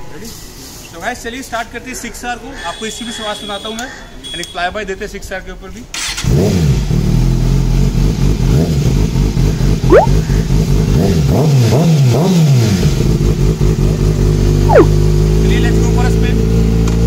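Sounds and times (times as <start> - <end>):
motorcycle engine revving and idling: 6.0 - 17.0
short sharp chirp: 9.9 - 10.4, 14.7 - 15.0.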